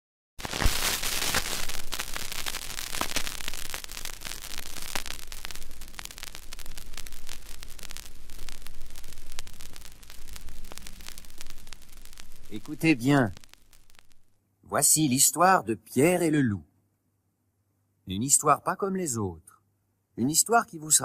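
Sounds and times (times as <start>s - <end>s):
vinyl surface hiss and crackles: 0.4s - 14.4s, 20.2s - 21.0s.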